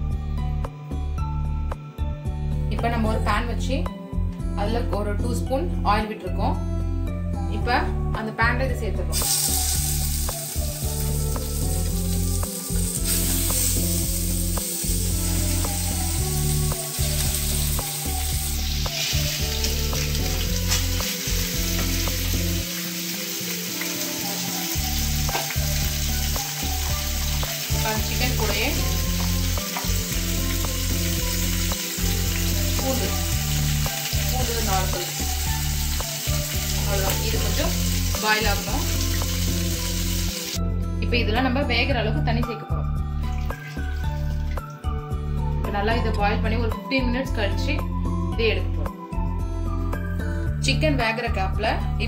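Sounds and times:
chicken sizzling in a frying pan: 9.1 - 40.6.

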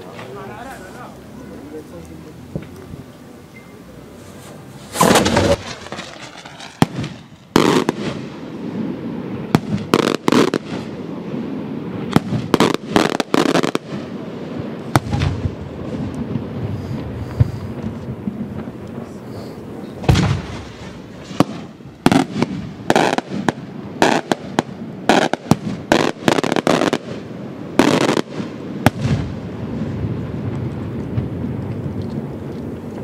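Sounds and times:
firework shells bursting: 1.9 - 10.9, 14.8 - 29.4.

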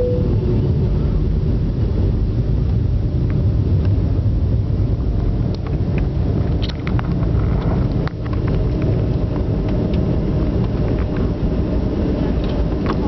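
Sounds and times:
engine and runway rumble: 0.0 - 13.0.

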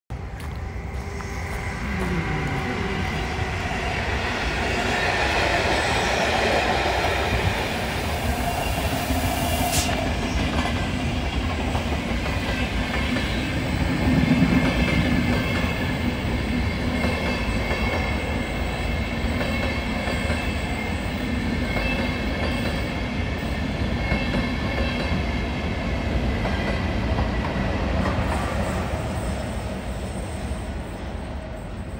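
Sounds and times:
train high whine: 0.1 - 31.9
train wheels clacking on rails: 4.0 - 25.5.

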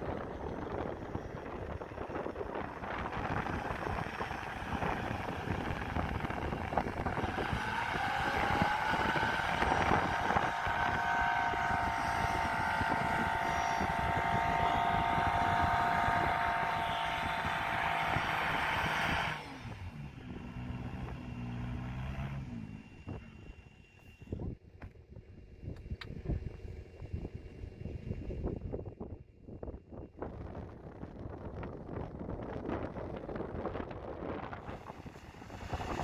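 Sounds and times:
rough low engine note: 0.0 - 28.8, 30.7 - 36.0
car engine revving: 2.4 - 23.7.

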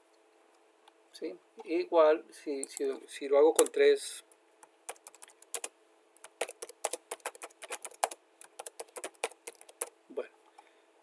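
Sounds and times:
typing on computer keyboard: 4.9 - 9.9.

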